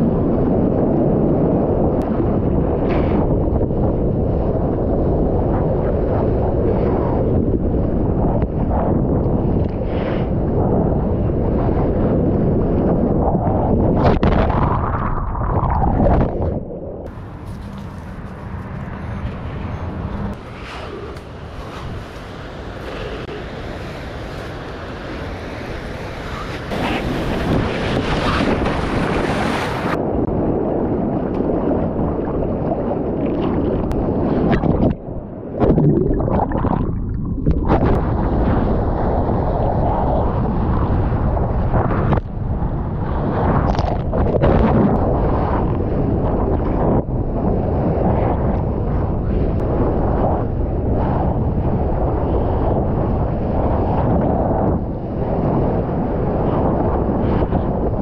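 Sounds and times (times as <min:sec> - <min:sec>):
wind buffeting microphone: 0:00.0 - 0:58.0
muffled rush of water: 0:07.9 - 0:48.6.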